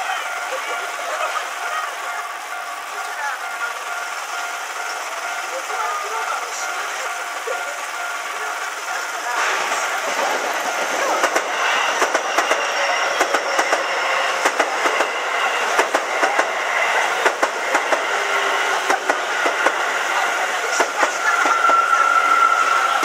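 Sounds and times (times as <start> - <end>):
train wheels clacking over rail joints: 0.6 - 23.0.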